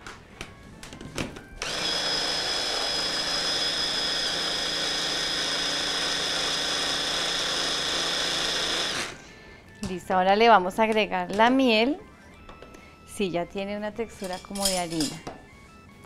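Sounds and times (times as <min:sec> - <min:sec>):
stick blender grinding nuts: 0:01.6 - 0:09.4.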